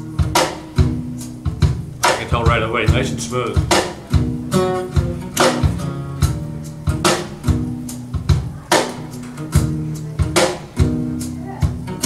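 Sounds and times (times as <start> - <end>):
drums and guitar music: 0.0 - 12.0.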